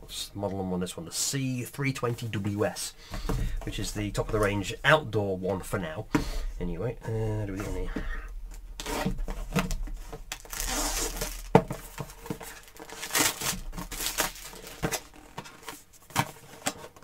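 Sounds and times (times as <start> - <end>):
plastic packaging crinkling: 8.8 - 16.8.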